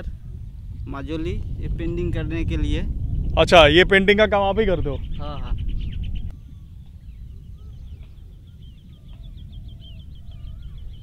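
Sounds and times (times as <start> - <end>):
steady low rumble: 0.0 - 11.0
high bird chirps: 4.8 - 11.0
lower whistled bird calls: 4.8 - 11.0.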